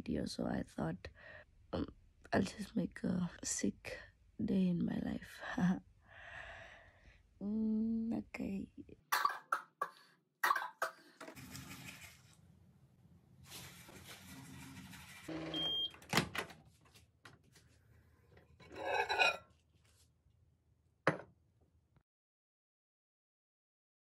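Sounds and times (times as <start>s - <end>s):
microwave beep: 15.3s - 16.0s.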